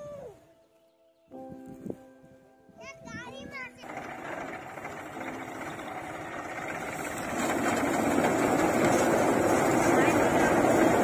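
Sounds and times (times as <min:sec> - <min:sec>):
threshing machine running: 0:03.7 - 0:11.0.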